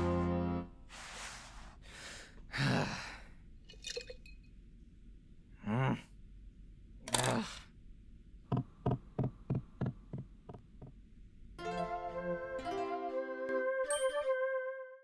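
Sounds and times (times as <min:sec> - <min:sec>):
person sighing and exhaling: 0:00.9 - 0:03.4, 0:05.6 - 0:06.1, 0:07.1 - 0:07.7
person humming: 0:02.5 - 0:03.1, 0:05.6 - 0:06.1, 0:07.1 - 0:07.6.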